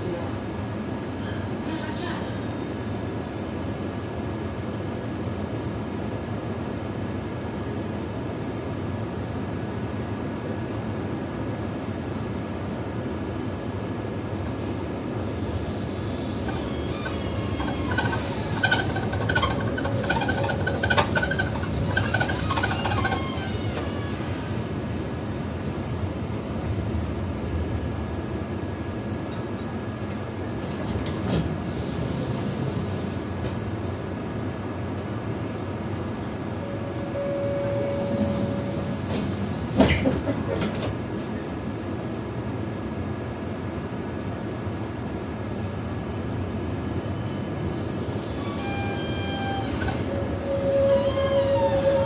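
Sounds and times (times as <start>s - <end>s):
tram wheels rumbling on rails: 0.0s - 52.0s
wheel squeal against rails: 15.3s - 24.7s, 36.6s - 40.1s, 47.2s - 52.0s.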